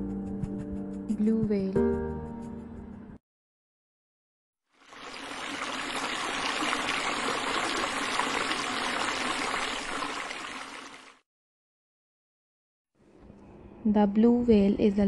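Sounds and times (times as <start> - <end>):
water rushing and trickling: 4.7 - 11.2.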